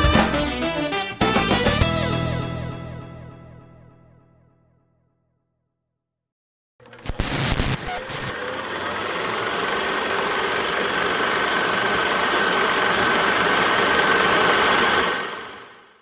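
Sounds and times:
mechanical whir: 0:06.8 - 0:16.0.

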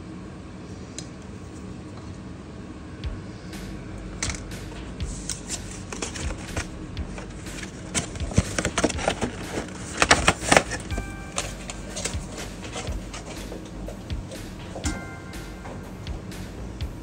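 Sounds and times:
cardboard boxes being handled: 0:05.2 - 0:13.5.

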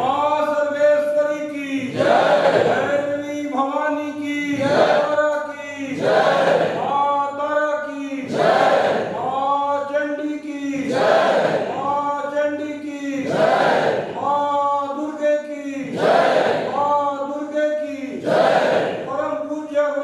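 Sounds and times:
group chanting a hymn: 0:01.8 - 0:03.2, 0:04.4 - 0:07.1, 0:08.2 - 0:09.4, 0:10.7 - 0:11.9, 0:13.1 - 0:14.4, 0:15.7 - 0:17.0, 0:17.8 - 0:19.2.

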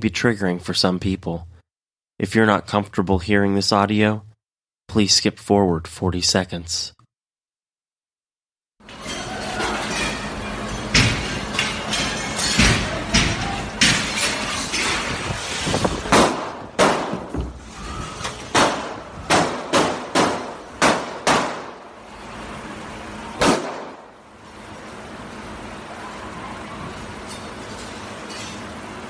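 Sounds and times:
gunshots: 0:16.1 - 0:17.3, 0:18.5 - 0:21.8, 0:23.4 - 0:24.1.

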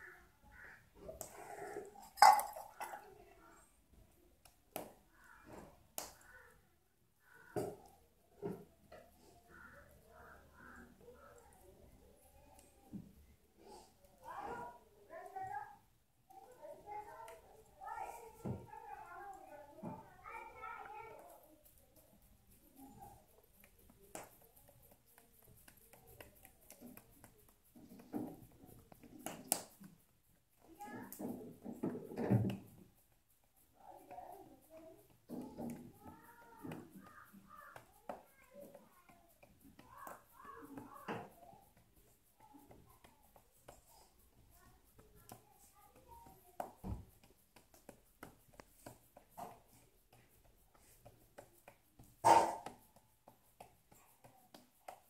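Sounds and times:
faint voices: 0:00.0 - 0:30.0
glass bangles clinking: 0:01.8 - 0:03.0
hands patting dough: 0:04.4 - 0:06.6, 0:16.8 - 0:55.0.

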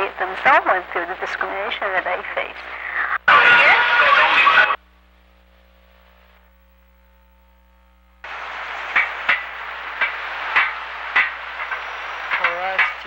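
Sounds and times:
loud dense noise: 0:00.0 - 0:04.8, 0:08.2 - 0:13.0
street noise: 0:00.0 - 0:04.8, 0:08.2 - 0:13.0
faint steady hum: 0:00.0 - 0:13.0
sharp knocks: 0:08.9 - 0:13.0.

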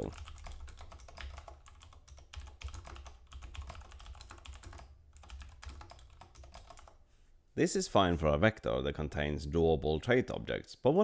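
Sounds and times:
computer keyboard typing: 0:00.0 - 0:07.0.

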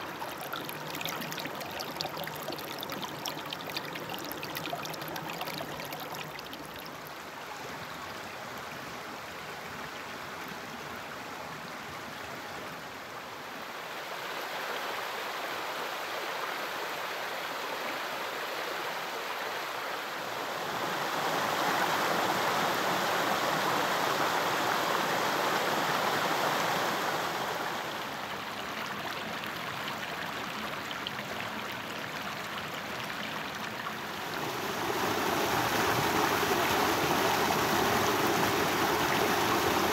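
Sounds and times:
creek water splashing over stones: 0:00.0 - 0:07.2.

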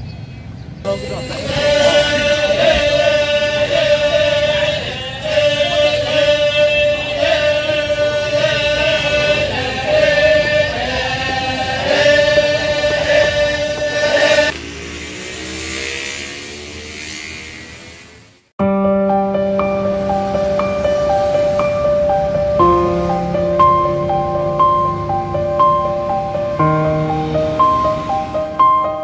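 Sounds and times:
voices singing slow song: 0:00.9 - 0:14.9, 0:19.8 - 0:29.0
hum rising in pitch: 0:01.0 - 0:29.0.

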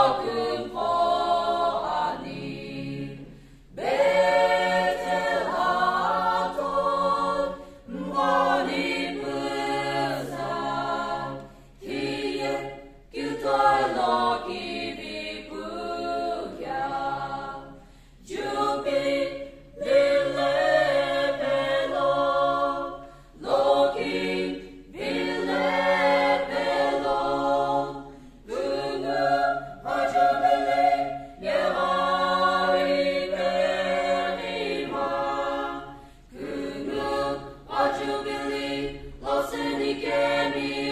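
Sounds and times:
choir singing unaccompanied: 0:00.0 - 0:40.9
singers breathing: 0:03.2 - 0:03.8, 0:07.6 - 0:07.9, 0:11.4 - 0:11.8, 0:17.8 - 0:18.2, 0:23.0 - 0:23.4, 0:35.9 - 0:36.3.

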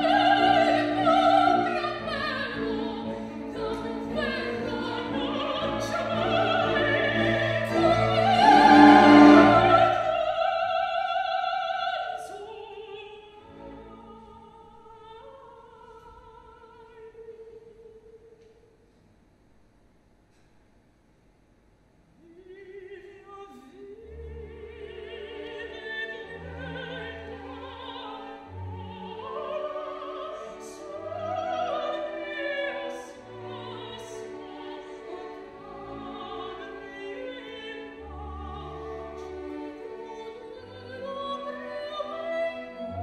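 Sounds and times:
opera orchestra: 0:00.0 - 0:18.6, 0:22.3 - 0:43.0
woman singing opera: 0:00.0 - 0:18.6, 0:22.2 - 0:43.0.

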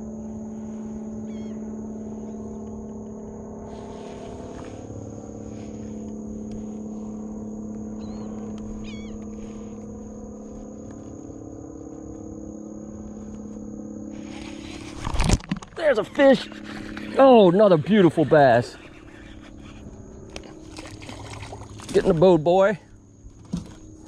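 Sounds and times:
electric trolling motor humming: 0:00.0 - 0:24.0.

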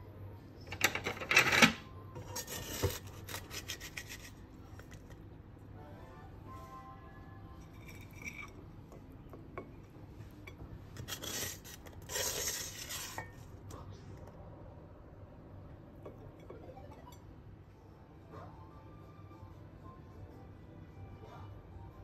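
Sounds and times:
spatula scraping a frying pan: 0:02.2 - 0:04.4, 0:11.0 - 0:13.4.

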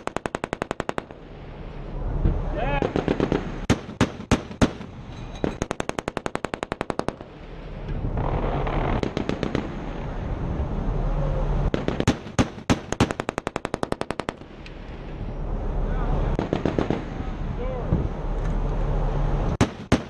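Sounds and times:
machine-gun fire: 0:02.8 - 0:07.3, 0:08.2 - 0:10.0, 0:11.7 - 0:14.4, 0:16.4 - 0:17.2, 0:19.6 - 0:20.0.

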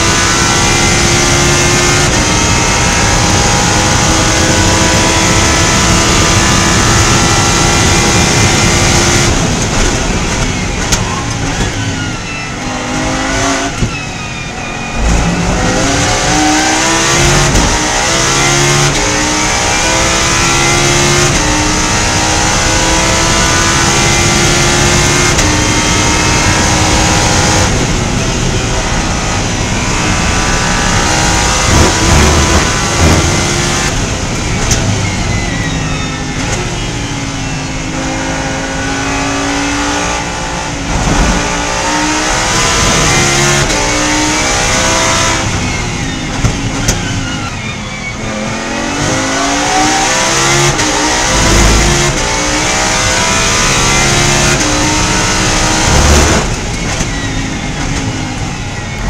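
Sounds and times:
race car engine at full throttle: 0:00.0 - 0:59.0
downshift rev blips: 0:12.3 - 0:47.0, 0:48.7 - 0:58.2.

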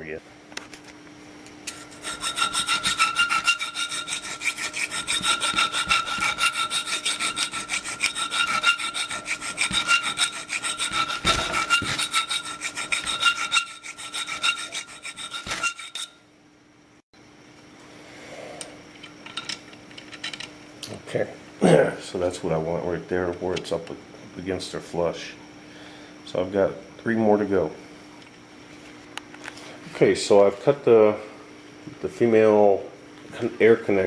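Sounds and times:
file rasping through metal washer: 0:01.7 - 0:16.2.

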